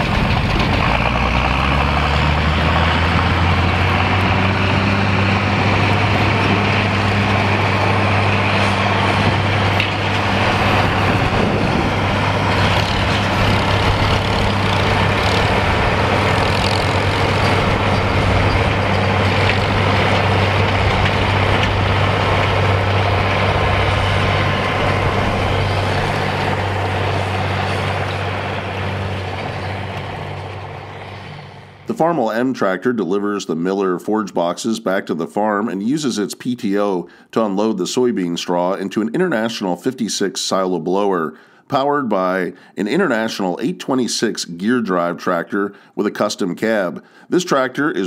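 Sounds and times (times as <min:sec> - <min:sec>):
forage harvester whirring: 0:00.0 - 0:32.1
tractor diesel engine running: 0:00.0 - 0:32.5.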